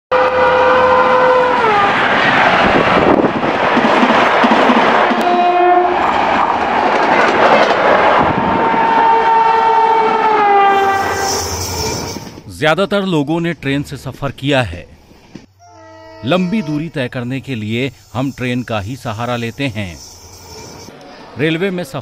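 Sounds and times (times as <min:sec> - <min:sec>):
locomotive horns: 0:00.1 - 0:02.0, 0:05.2 - 0:06.0, 0:08.8 - 0:11.6, 0:15.6 - 0:17.4
trains rushing and clattering: 0:00.4 - 0:12.6, 0:16.2 - 0:22.0.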